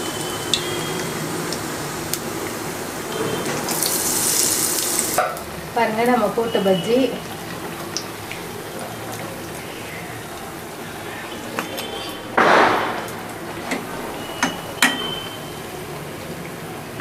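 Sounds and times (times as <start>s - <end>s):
food deep-frying in hot oil: 0.0s - 17.0s.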